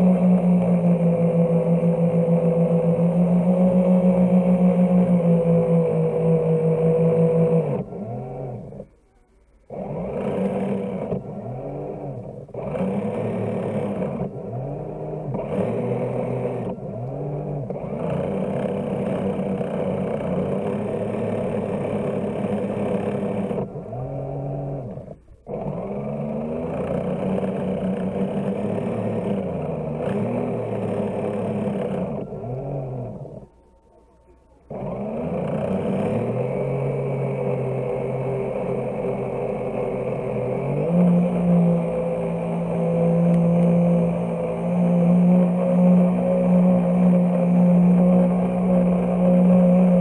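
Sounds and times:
model boat motor revving: 0.0s - 9.0s, 9.6s - 33.8s, 34.6s - 50.0s.

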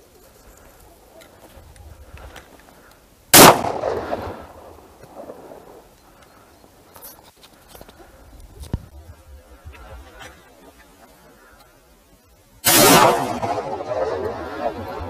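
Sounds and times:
shotgun shot with echo: 3.4s - 4.5s, 12.6s - 14.8s.

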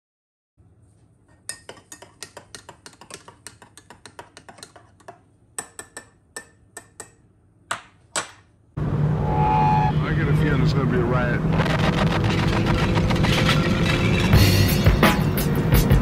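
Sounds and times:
teaspoon clinking in a ceramic mug: 1.4s - 7.2s.

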